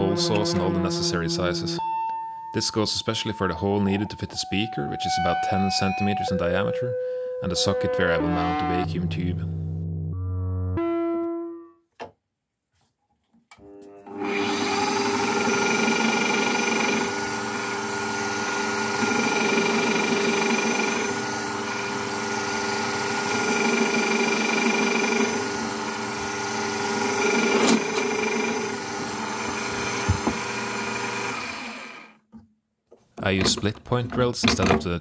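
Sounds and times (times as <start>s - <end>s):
drill press boring through acrylic: 14.0s - 32.2s.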